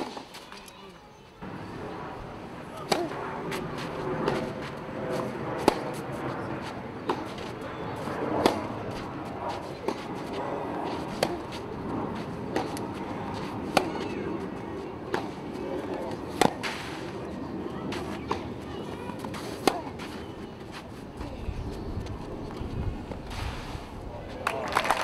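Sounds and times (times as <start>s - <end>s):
tennis ball struck by rackets: 2.8s - 11.6s, 12.2s - 14.3s, 15.0s - 17.1s, 19.1s - 20.2s.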